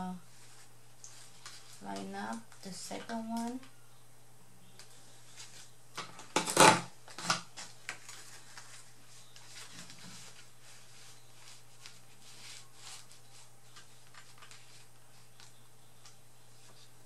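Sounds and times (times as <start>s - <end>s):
paper handling: 0.3s - 3.6s, 4.8s - 17.0s.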